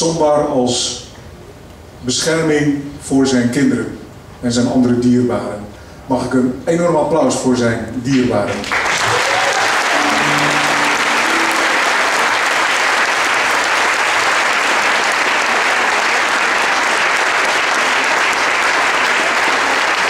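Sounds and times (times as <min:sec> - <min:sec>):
audience applauding: 0:08.5 - 0:20.0.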